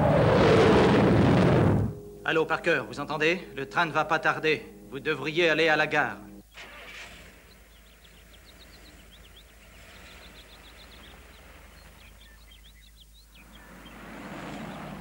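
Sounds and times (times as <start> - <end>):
small birds chirping: 3.5 - 15.0.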